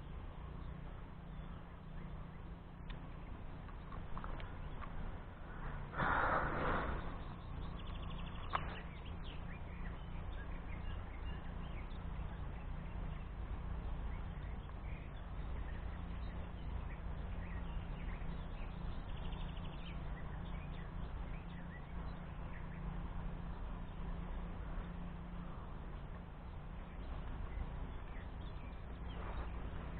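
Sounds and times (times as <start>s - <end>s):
faint bird chirps: 0.0s - 29.9s
wind buffeting microphone: 2.4s - 29.9s
loud rough noise: 5.5s - 7.4s.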